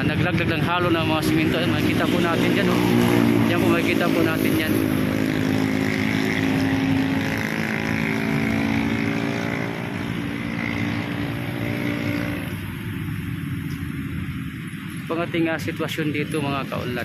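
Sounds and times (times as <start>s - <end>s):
motorboat engine droning: 0.0s - 17.0s.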